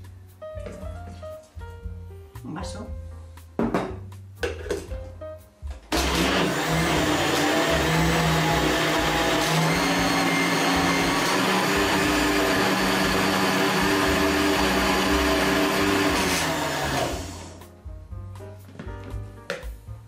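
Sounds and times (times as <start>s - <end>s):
blender running: 5.9s - 17.6s.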